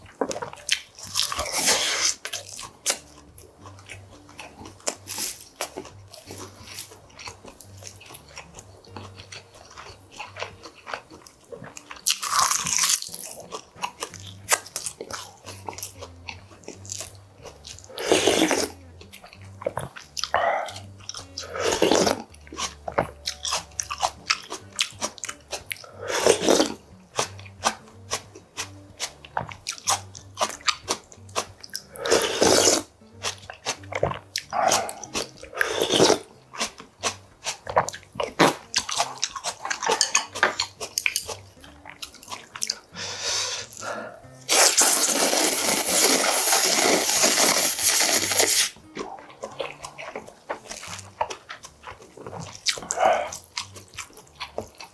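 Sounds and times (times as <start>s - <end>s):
crunchy chewing: 0.0s - 54.9s
loud slurping of soup: 17.9s - 18.7s, 26.0s - 26.8s, 32.0s - 32.8s, 35.6s - 36.2s, 43.0s - 48.8s.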